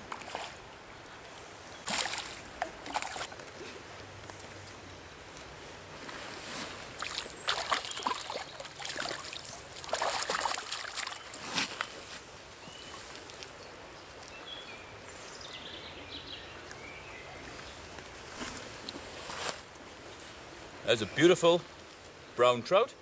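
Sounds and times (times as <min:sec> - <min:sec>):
river flowing: 0:00.0 - 0:06.1, 0:06.7 - 0:23.0
fish splashing at surface: 0:01.9 - 0:03.4, 0:07.0 - 0:11.4.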